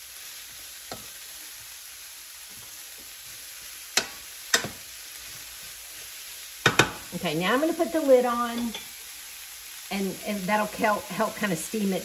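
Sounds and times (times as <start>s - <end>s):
cabbage sizzling in skillet: 0.0s - 12.0s
spatula knocking against pan: 4.0s - 4.8s, 6.6s - 7.0s.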